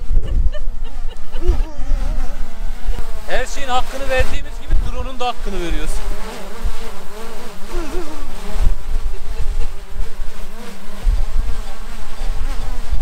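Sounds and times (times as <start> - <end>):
wind rumbling on microphone: 0.0 - 7.0, 7.6 - 13.0
drone propellers whining: 0.0 - 13.0.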